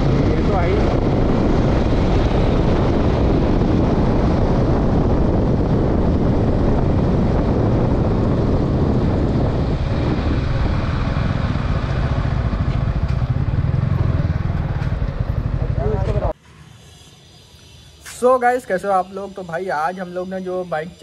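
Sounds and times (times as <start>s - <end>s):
motorcycle engine running: 0.0s - 16.4s
wind rush on microphone: 0.0s - 16.4s.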